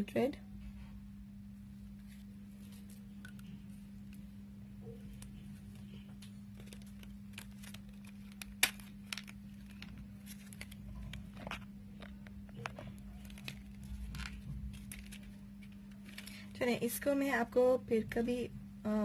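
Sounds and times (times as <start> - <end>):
steady low hum: 0.0 - 19.0
plastic cases clicking and crinkling: 6.2 - 16.5.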